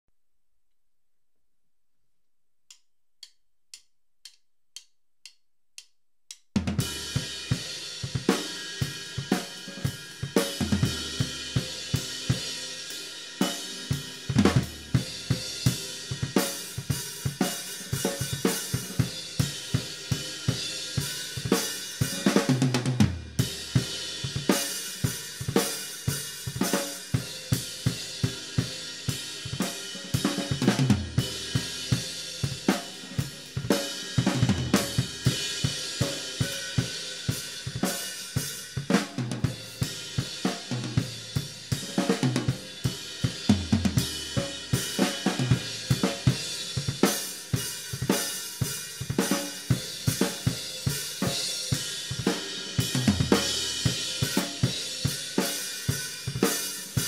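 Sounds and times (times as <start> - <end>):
count-in clicks: 2.7 - 6.7
drum kit groove: 3.2 - 57.0.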